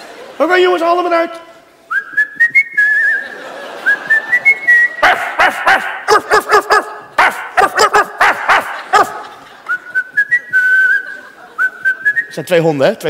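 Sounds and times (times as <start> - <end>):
man whistling: 1.9 - 5.0, 9.7 - 12.4
man imitating dog barks: 5.0 - 9.4.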